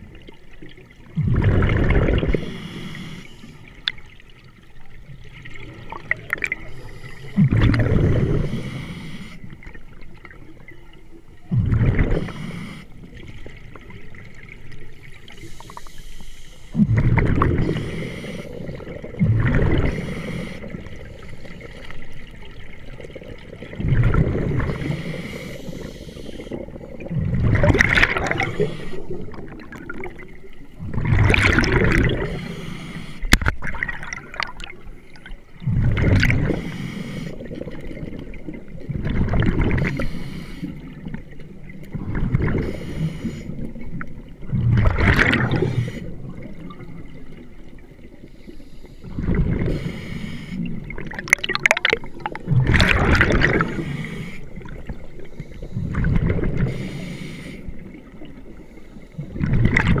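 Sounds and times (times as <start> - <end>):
bubbles gurgling underwater: 0.0 - 2.8, 3.7 - 8.9, 9.6 - 15.4, 16.7 - 36.8, 37.4 - 48.2, 49.0 - 50.1, 50.7 - 57.0, 59.2 - 60.0
diver breathing through regulator: 2.3 - 3.6, 6.6 - 9.6, 12.1 - 13.2, 15.4 - 16.9, 17.5 - 18.8, 19.6 - 21.1, 24.5 - 26.8, 27.7 - 29.5, 31.8 - 33.3, 35.7 - 37.6, 39.8 - 41.1, 42.5 - 43.8, 45.4 - 46.4, 48.2 - 51.0, 53.2 - 58.0.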